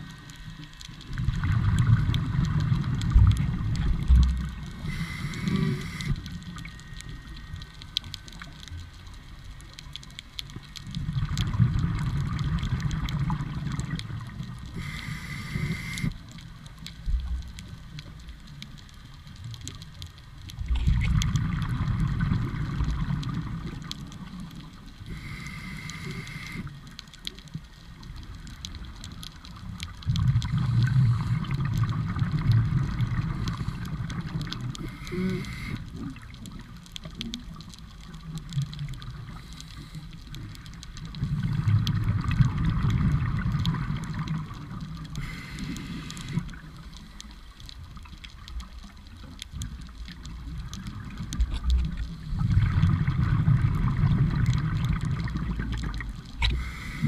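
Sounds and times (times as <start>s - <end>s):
exhaled bubbles burbling: 1.0s - 6.8s, 10.8s - 16.1s, 20.6s - 25.1s, 29.8s - 39.4s, 40.5s - 46.8s, 49.6s - 57.0s
regulator hissing inhale: 4.8s - 6.3s, 14.7s - 16.2s, 25.1s - 26.8s, 34.8s - 36.0s, 39.3s - 40.2s, 45.2s - 47.4s, 56.5s - 57.0s.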